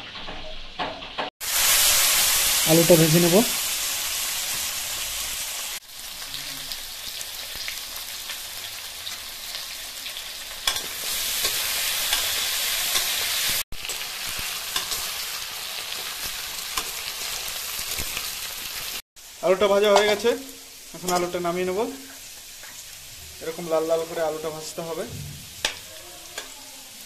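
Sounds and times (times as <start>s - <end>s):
potato wedges sizzling in oil: 0.1s - 27.0s
metal spatula scraping and tapping: 10.6s - 13.1s, 14.7s - 15.0s, 25.3s - 26.6s.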